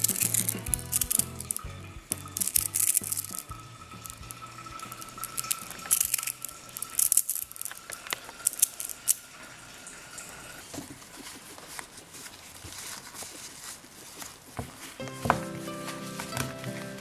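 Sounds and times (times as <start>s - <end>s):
magnet balls clicking together: 0.0s - 9.2s.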